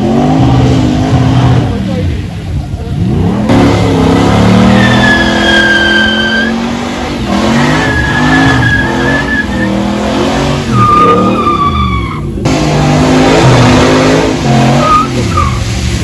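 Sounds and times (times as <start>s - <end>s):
van engine revving: 2.8s - 11.3s, 12.3s - 15.3s
tyres squealing: 4.5s - 6.7s, 7.3s - 12.4s.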